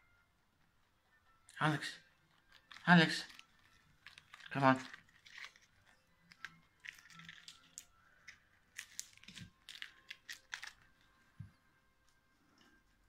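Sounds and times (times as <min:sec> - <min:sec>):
rabbit chewing crisp leaves: 0:02.2 - 0:11.2.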